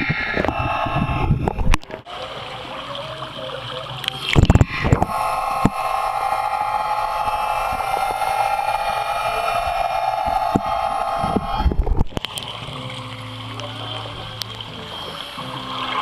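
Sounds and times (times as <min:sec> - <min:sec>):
underwater electric motor whine: 0:00.0 - 0:02.0, 0:04.3 - 0:16.0.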